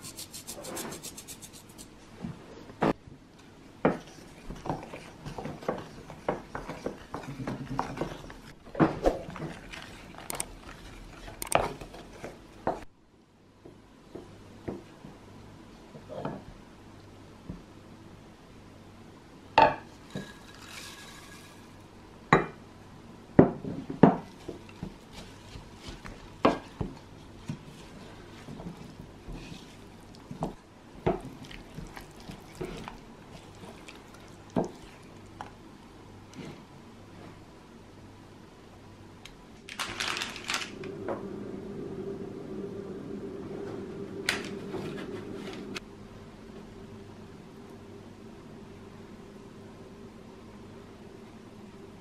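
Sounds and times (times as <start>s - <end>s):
wooden spoon scraping in pan: 3.9s - 12.4s, 20.0s - 21.8s, 24.2s - 35.6s, 44.5s - 45.8s
baking parchment crinkling: 39.6s - 40.9s
low hum: 40.5s - 49.2s.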